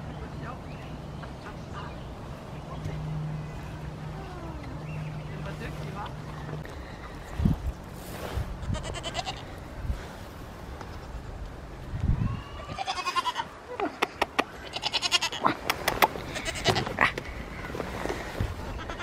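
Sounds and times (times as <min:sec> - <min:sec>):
goat bleating: 0:08.6 - 0:09.6, 0:12.5 - 0:13.5, 0:14.6 - 0:15.6, 0:16.3 - 0:17.1, 0:18.7 - 0:19.0.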